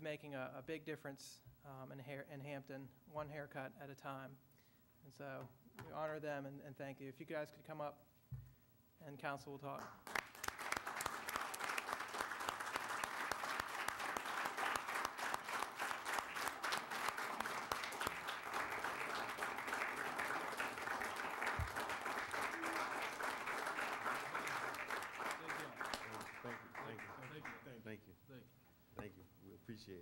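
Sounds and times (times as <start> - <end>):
crowd applauding: 9.8 - 27.7.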